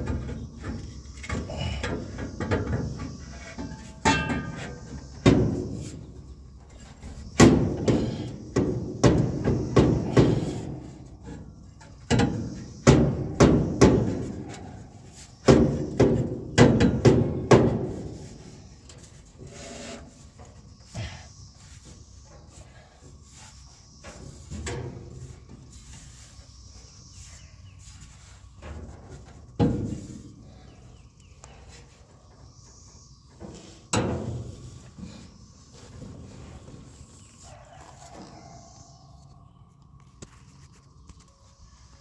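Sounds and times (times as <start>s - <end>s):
metallic knocks and clunks: 0.0s - 5.9s, 7.4s - 18.3s
metal scraping: 17.6s - 30.9s.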